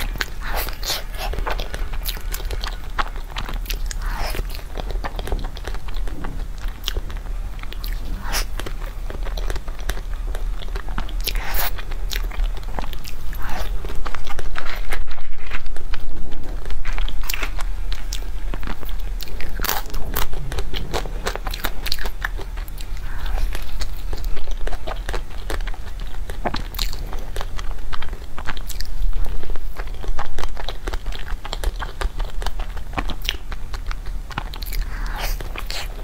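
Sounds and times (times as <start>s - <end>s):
chewing with mouth clicks and smacks: 0.0s - 36.0s.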